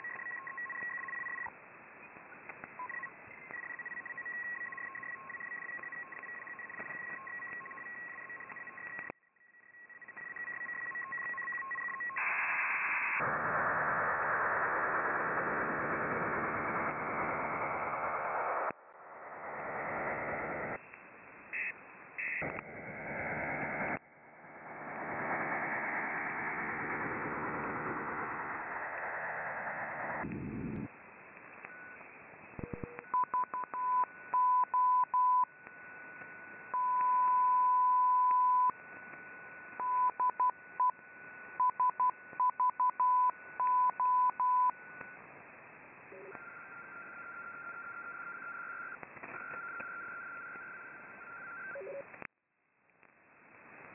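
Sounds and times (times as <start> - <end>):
morse code beeps: 0.0 - 1.5, 2.8 - 12.2, 32.6 - 35.5, 36.8 - 38.7, 39.8 - 41.0, 41.6 - 44.8
radio hiss and static: 0.0 - 52.3.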